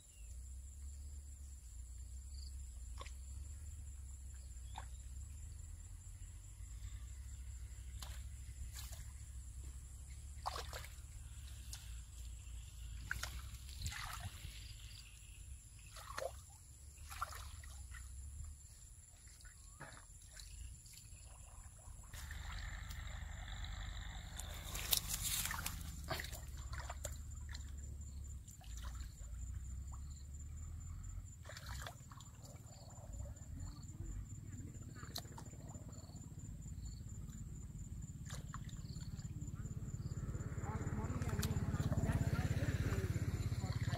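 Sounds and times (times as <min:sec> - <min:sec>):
hands splashing in muddy water: 0:10.2 - 0:12.0, 0:12.6 - 0:15.2, 0:15.8 - 0:18.2, 0:24.5 - 0:27.8, 0:31.4 - 0:32.5.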